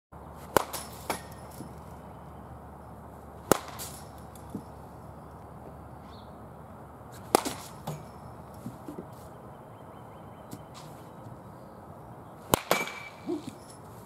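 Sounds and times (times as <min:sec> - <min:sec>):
baseball bat hitting ball: 0:00.4 - 0:02.0, 0:03.4 - 0:04.8, 0:07.2 - 0:09.1, 0:12.4 - 0:13.8.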